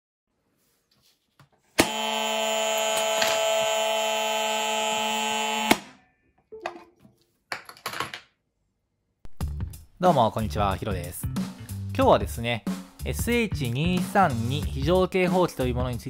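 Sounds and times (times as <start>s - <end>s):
harsh electric alarm buzzer: 1.8s - 6.0s.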